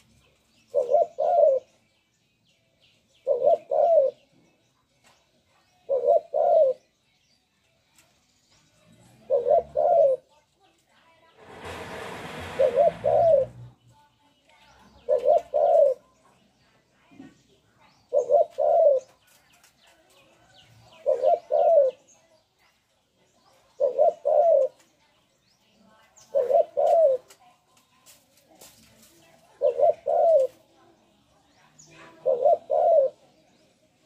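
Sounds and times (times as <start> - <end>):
dove cooing: 0.6 - 1.8, 3.2 - 4.3, 5.8 - 6.9, 9.0 - 10.3, 11.4 - 13.8, 15.0 - 16.2, 18.1 - 19.3, 20.9 - 22.1, 23.5 - 24.9, 26.2 - 27.4, 29.4 - 30.7, 32.1 - 33.4.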